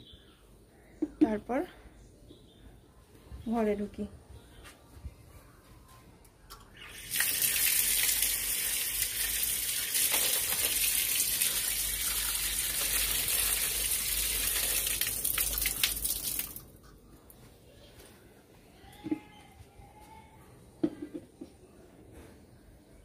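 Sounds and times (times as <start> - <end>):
water gushing from tap: 6.8 - 16.6.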